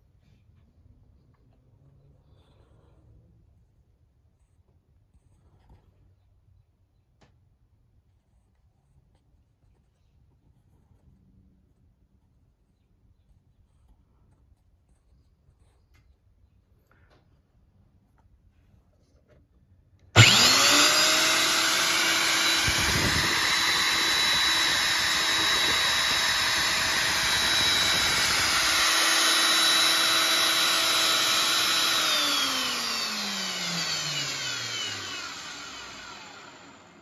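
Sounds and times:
electric core drill motor whining: 0:20.2 - 0:37.0.

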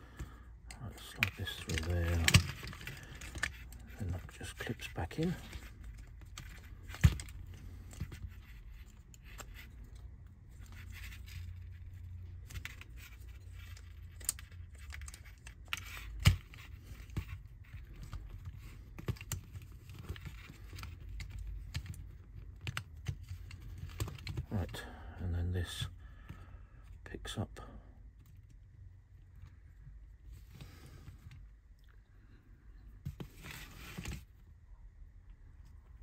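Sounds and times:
small parts clicking and rattling: 0:00.0 - 0:24.8.

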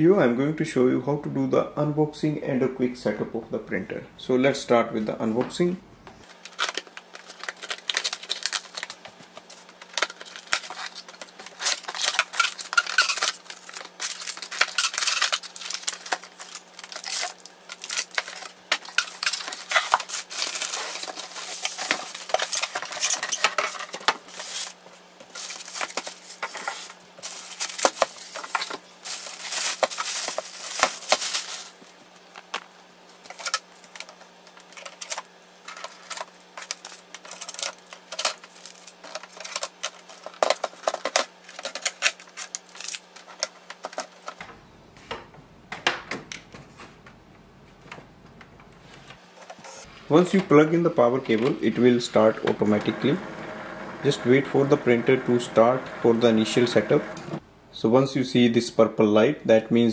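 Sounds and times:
packaging crinkling: 0:06.2 - 0:44.4
tape being peeled: 0:06.2 - 0:44.4.

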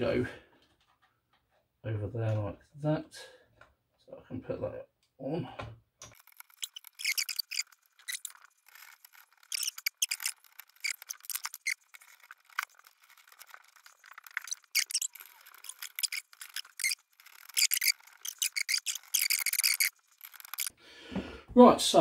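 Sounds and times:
cables rustling and scraping: 0:06.0 - 0:20.7.

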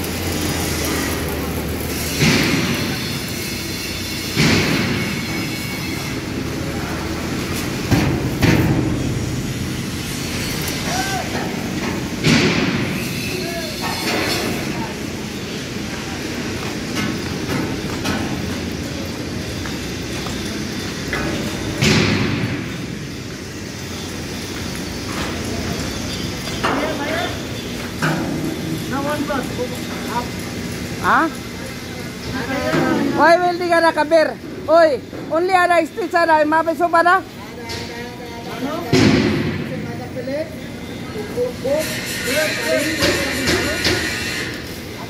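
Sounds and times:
loud hissing bursts: 0:00.0 - 0:34.1, 0:40.6 - 0:45.0
factory machinery din: 0:00.0 - 0:45.0
loud ringing bang: 0:38.9 - 0:39.9.

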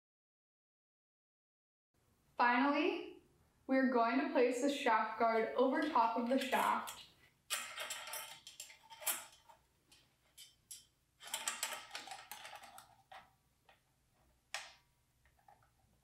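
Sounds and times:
metal scraping and clicking: 0:05.8 - 0:13.3.

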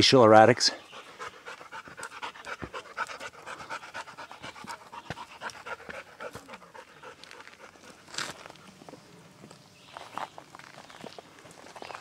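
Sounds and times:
dog panting: 0:00.8 - 0:08.1.

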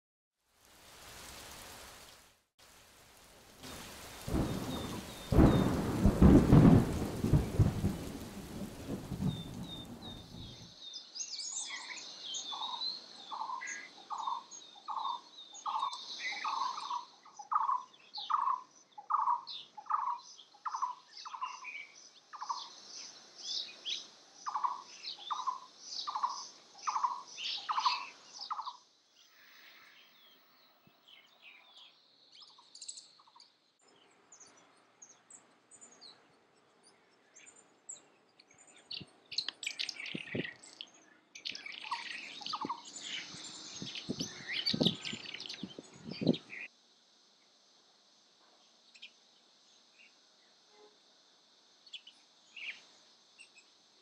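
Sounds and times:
small birds chirping: 0:03.2 - 0:46.7, 0:48.4 - 0:50.9, 0:51.5 - 0:54.0
bird low hollow notes: 0:03.7 - 0:10.7.

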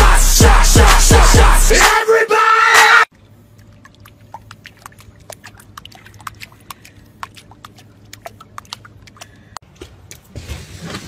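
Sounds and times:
water splashes and drips: 0:03.1 - 0:09.6.

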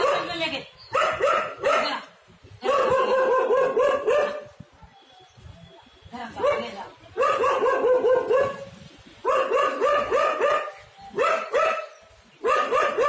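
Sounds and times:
animal barking: 0:09.2 - 0:13.0.

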